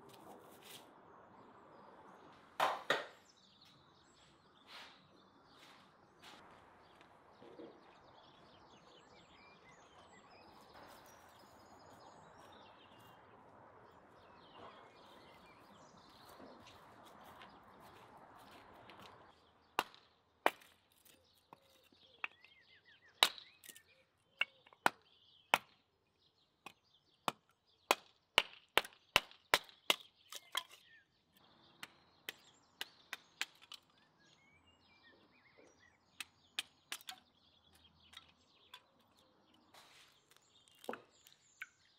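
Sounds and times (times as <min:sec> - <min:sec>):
hatchet chopping wood: 0:19.8 - 0:22.6, 0:23.2 - 0:25.8, 0:26.6 - 0:30.9, 0:31.8 - 0:33.9, 0:36.1 - 0:38.9.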